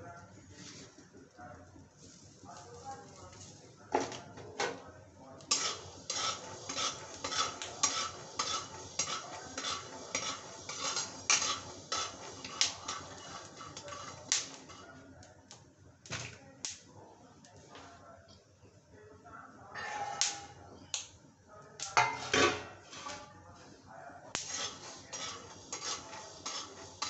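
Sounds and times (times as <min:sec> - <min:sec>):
peanuts rattling in a pan: 0:05.4 - 0:14.9, 0:24.4 - 0:27.0
spatula scraping a wok: 0:05.4 - 0:15.0, 0:19.8 - 0:20.6, 0:22.0 - 0:23.3, 0:24.4 - 0:27.0.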